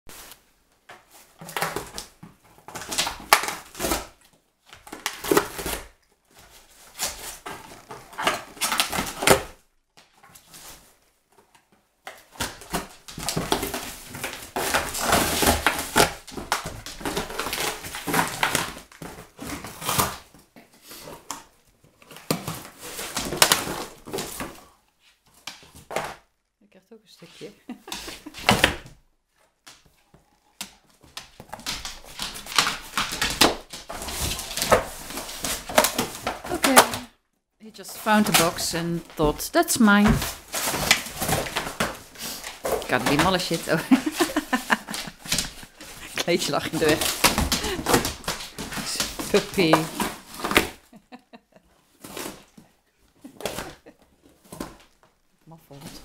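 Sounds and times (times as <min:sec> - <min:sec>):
dog tearing cardboard: 0:01.2 - 0:09.6, 0:10.2 - 0:21.4, 0:22.0 - 0:24.6, 0:30.8 - 0:37.0, 0:37.9 - 0:50.9, 0:51.9 - 0:52.6.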